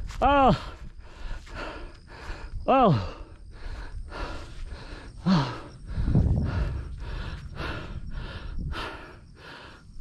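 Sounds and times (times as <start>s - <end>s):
person panting hard: 0.5s - 10.0s
voiced gasp: 0.6s - 9.8s
low rumble: 5.7s - 9.2s.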